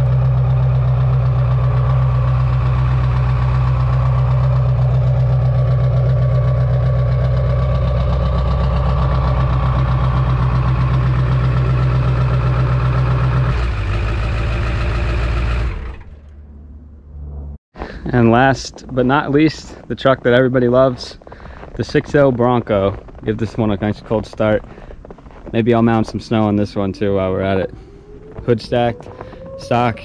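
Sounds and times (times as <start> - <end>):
diesel pickup engine idling: 0.0 - 16.2.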